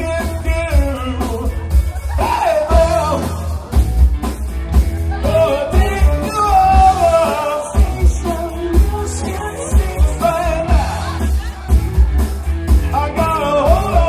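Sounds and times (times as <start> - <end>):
person singing: 0.0 - 3.8, 5.0 - 14.0
live rock band playing: 0.0 - 14.0.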